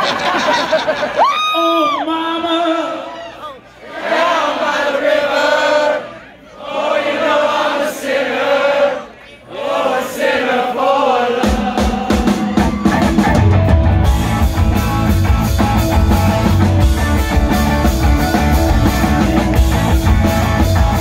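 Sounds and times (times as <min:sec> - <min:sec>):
rock band playing loudly: 0:11.4 - 0:21.0.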